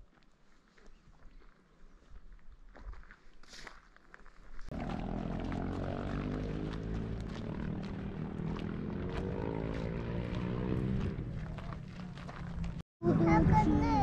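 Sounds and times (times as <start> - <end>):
engine droning: 4.7 - 13.8.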